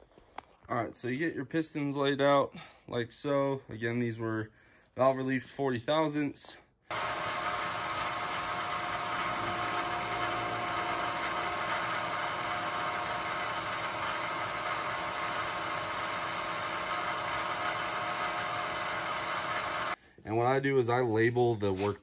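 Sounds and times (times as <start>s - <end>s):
milling machine running: 6.9s - 20.0s.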